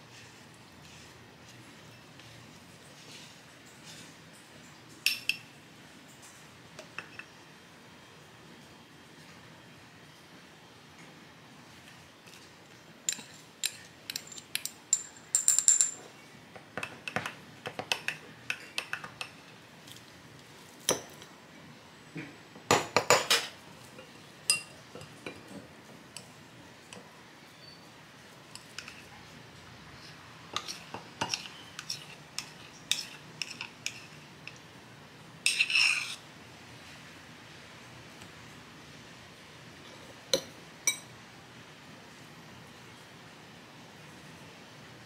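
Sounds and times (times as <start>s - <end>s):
spoons clinking on glass bowls: 5.0s - 5.5s, 13.1s - 16.1s, 24.5s - 25.4s, 30.5s - 34.6s, 35.4s - 36.2s, 40.3s - 41.1s.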